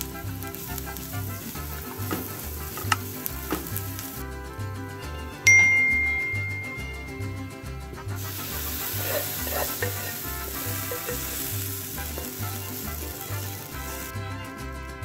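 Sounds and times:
onions sizzling in oil: 0.0 - 4.2, 8.2 - 14.1
background music with beat: 0.0 - 15.0
wooden spoon scraping a pan: 0.4 - 4.2, 8.2 - 14.1.

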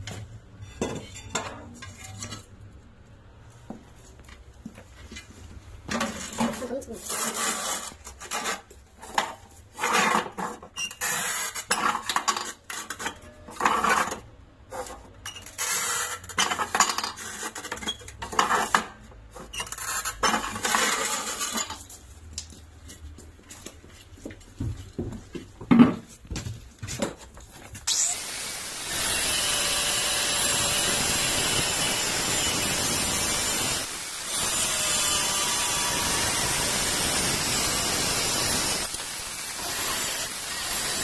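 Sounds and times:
tile scraping on tile cutter: 6.0 - 21.8, 27.9 - 41.0.

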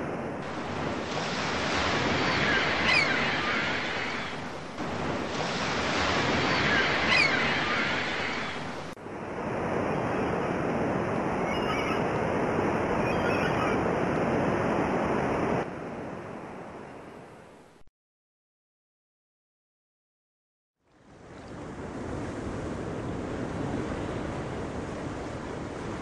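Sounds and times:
surf rushing: 0.0 - 16.8
wind: 0.0 - 17.9, 20.8 - 26.0
high bird cry: 2.2 - 4.4, 6.4 - 8.6, 11.4 - 12.1, 13.0 - 13.8.

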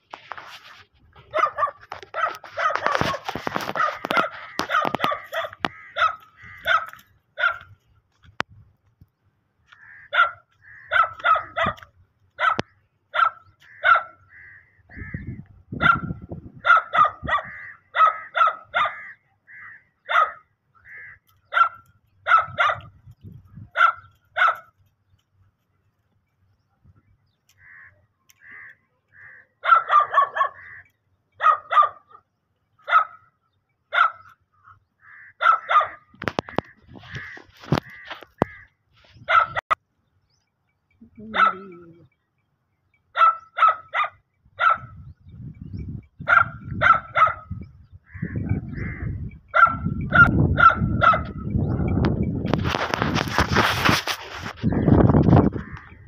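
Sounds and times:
dog barking: 1.3 - 7.7, 10.1 - 14.2, 15.8 - 19.1, 20.0 - 20.5, 21.5 - 22.9, 23.7 - 24.7, 29.6 - 30.7, 31.4 - 33.3, 33.9 - 34.3, 35.4 - 36.1, 39.3 - 39.7, 41.3 - 41.7, 43.1 - 45.0, 46.2 - 47.5, 49.5 - 51.9.

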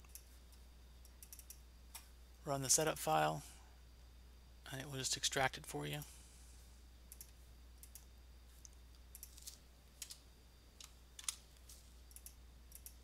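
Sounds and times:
computer mouse clicks: 0.0 - 2.1, 7.1 - 10.2, 12.1 - 13.0
low steady hum: 0.0 - 13.0.

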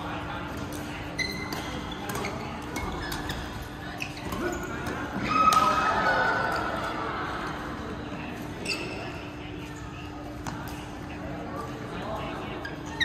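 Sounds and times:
players' voices: 0.0 - 13.0
shoes squeaking on court floor: 0.1 - 5.7, 8.2 - 13.0
rackets hitting shuttlecock: 4.2 - 5.8.

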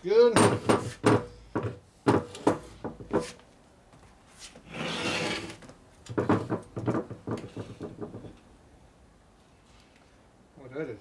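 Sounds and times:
metal parts knocking on workbench: 0.4 - 3.3
metal scraping on workbench: 4.6 - 5.6.

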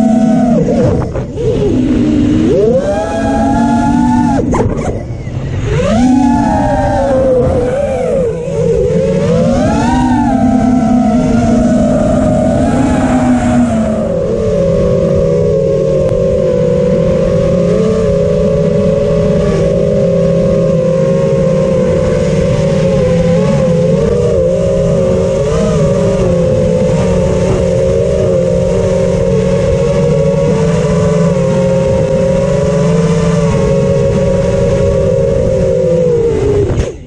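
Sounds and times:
quadcopter motors whining: 0.0 - 37.0.

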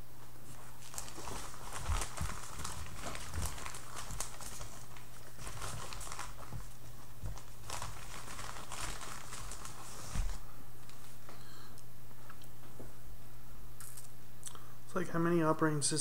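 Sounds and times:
plastic bag crinkling: 0.5 - 10.4.

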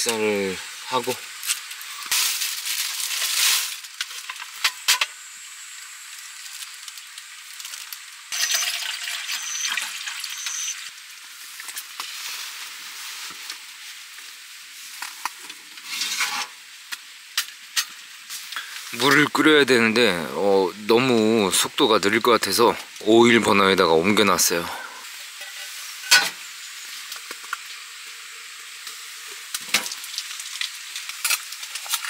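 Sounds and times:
faint steady hiss: 0.0 - 32.0
plastic bag crinkling: 1.6 - 4.6
water poured into metal pot: 6.1 - 11.0, 29.5 - 32.0.

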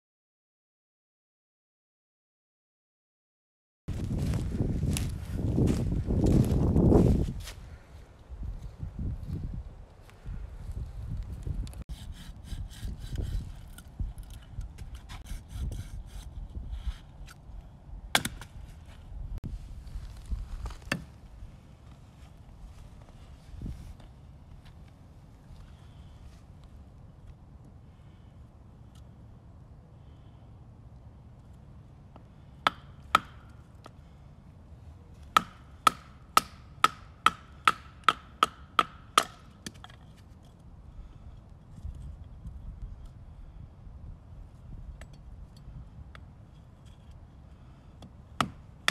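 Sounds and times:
knife scraping wood: 11.9 - 17.4
sharp wooden knocks: 35.4 - 39.9.

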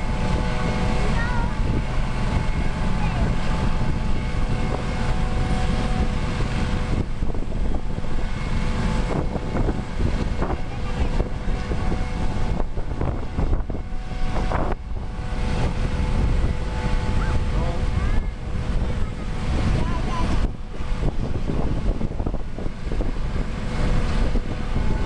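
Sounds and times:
heavy low rumble: 0.0 - 25.0
helicopter turbine whine: 0.0 - 25.0.

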